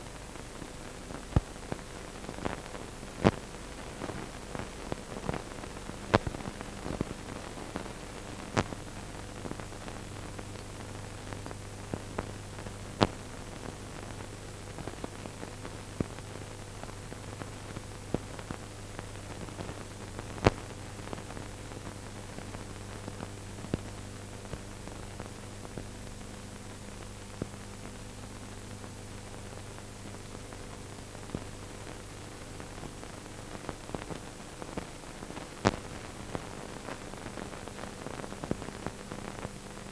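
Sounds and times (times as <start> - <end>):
film soundtrack hiss and crackle: 0.0 - 39.9
low electrical hum: 0.0 - 39.9
sharp clicks and pops: 35.6 - 36.0.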